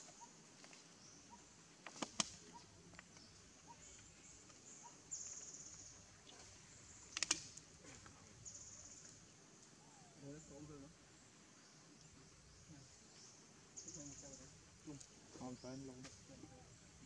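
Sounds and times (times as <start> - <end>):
high insect drone: 3.0 - 17.0
sharp clicks: 7.1 - 7.6.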